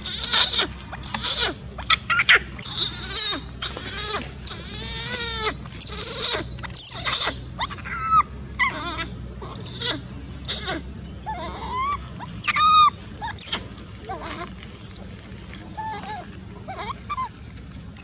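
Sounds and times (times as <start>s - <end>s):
baby monkey screaming: 0.0s - 14.6s, 15.8s - 17.4s.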